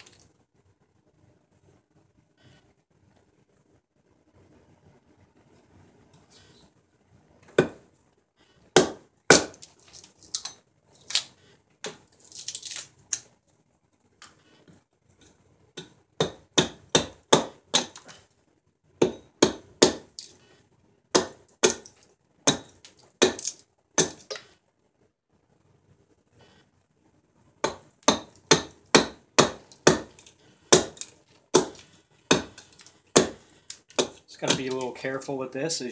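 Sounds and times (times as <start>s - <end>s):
hatchet chopping wood: 7.5s - 7.8s, 8.8s - 10.5s, 15.8s - 18.2s, 19.0s - 20.3s, 21.1s - 24.4s, 27.6s - 34.9s.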